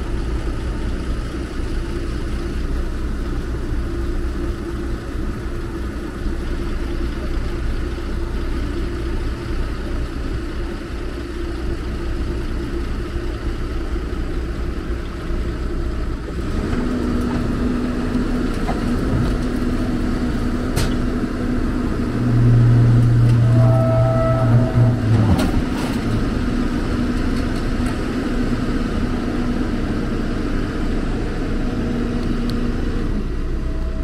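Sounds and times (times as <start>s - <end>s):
diesel engine running: 0.0s - 34.0s
low hum with higher whine: 0.0s - 34.0s.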